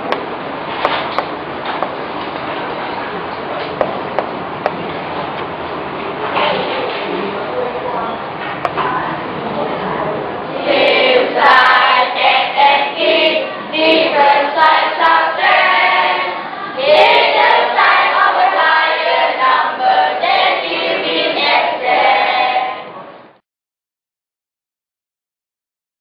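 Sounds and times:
children singing together: 10.5 - 23.0.

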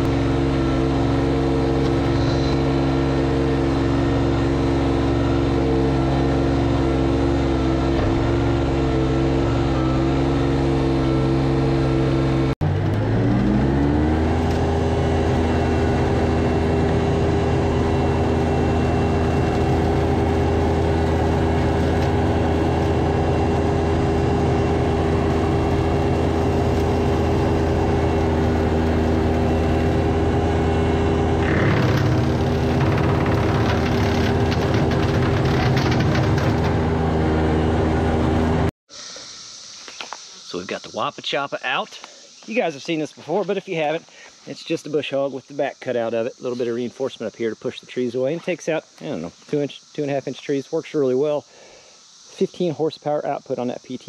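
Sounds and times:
tractor engine running: 0.0 - 38.7.

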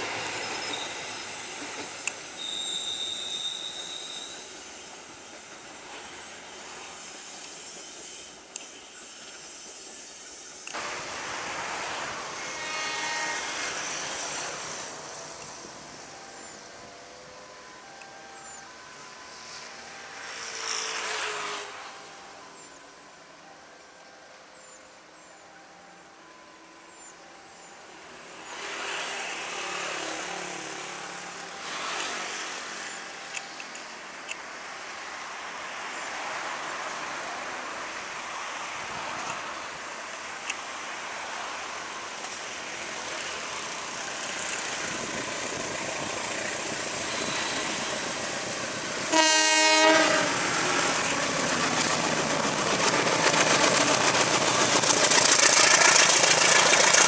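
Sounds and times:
locomotive engine and rolling wheels: 0.0 - 57.0
train horn blast: 12.1 - 14.3, 49.0 - 50.8.

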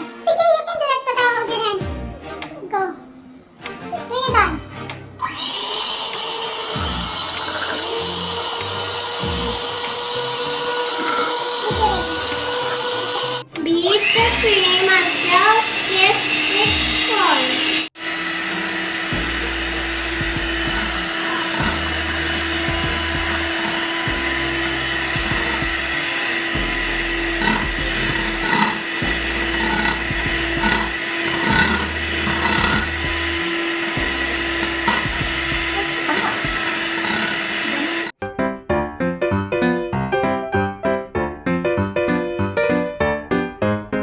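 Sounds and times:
beaters whipping cream in bowl: 5.2 - 38.2
electric hand mixer whining: 5.2 - 38.2
piano music: 18.0 - 44.0.

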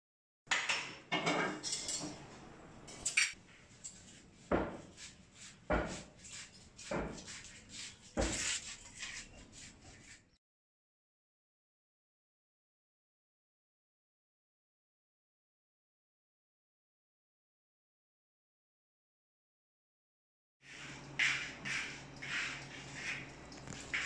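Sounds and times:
kitchenware clattering: 0.5 - 5.0.

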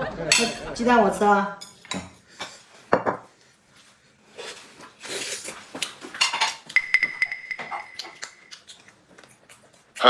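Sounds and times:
chopsticks clicking while eating: 7.6 - 10.0.

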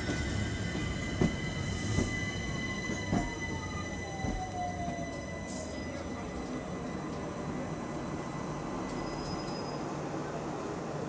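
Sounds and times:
electric train rumble and whine: 0.0 - 11.0
train wheel knocks: 4.2 - 4.5.

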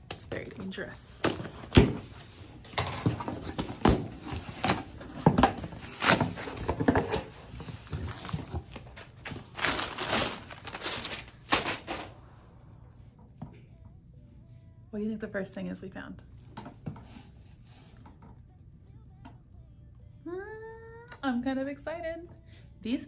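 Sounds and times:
cardboard rustling and tearing: 3.0 - 12.1.

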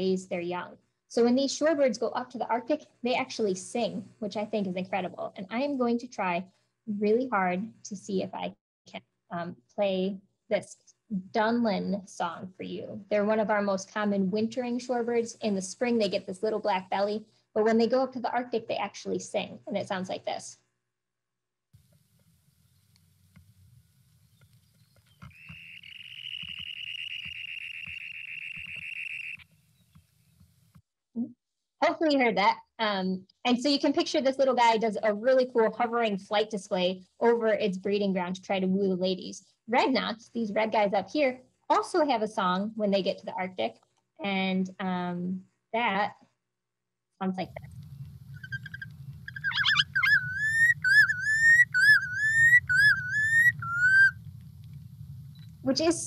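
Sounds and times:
bird's high rapid trill: 24.8 - 30.3, 48.3 - 54.2
steady low hum: 47.4 - 56.0.

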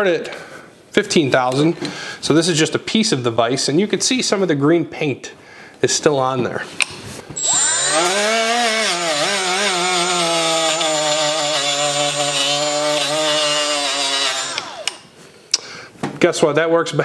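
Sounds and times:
die grinder whining: 7.4 - 15.1.

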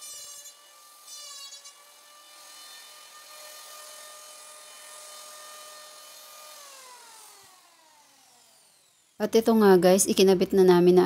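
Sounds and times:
electric planer cutting wood: 0.0 - 10.3
planer motor whining: 0.8 - 9.2.

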